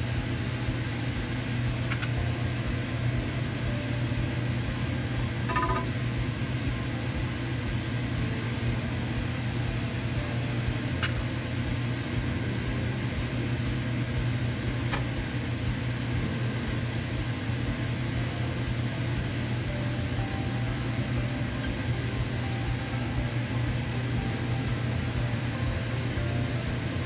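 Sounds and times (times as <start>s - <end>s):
low mechanical hum with hiss: 0.0s - 27.0s
sharp click: 14.9s - 15.2s.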